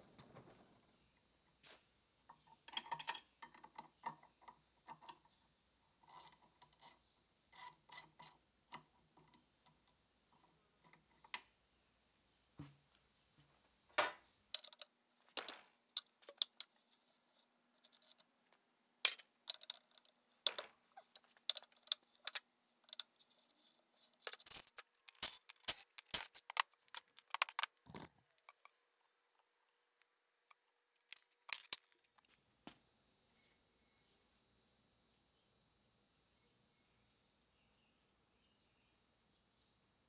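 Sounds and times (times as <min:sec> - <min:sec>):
wrench clinking on metal bolts: 0:24.2 - 0:27.7.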